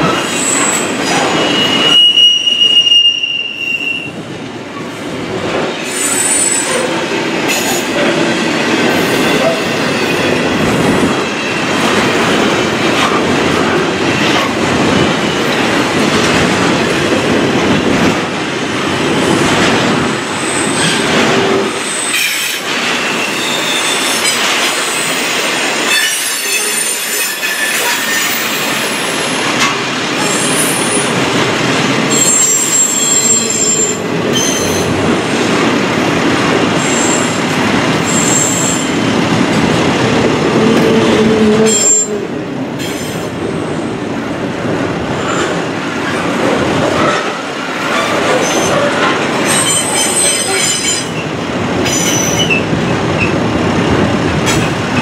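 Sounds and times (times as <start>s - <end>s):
high-pitched wheel squeals: 0.3s - 4.1s.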